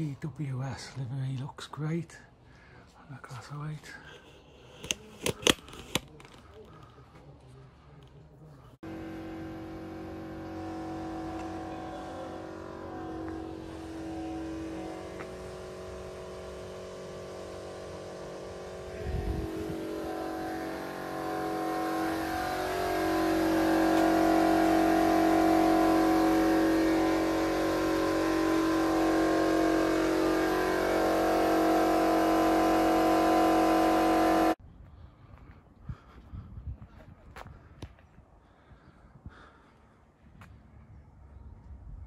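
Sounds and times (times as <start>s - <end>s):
large engine humming: 8.6s - 34.6s.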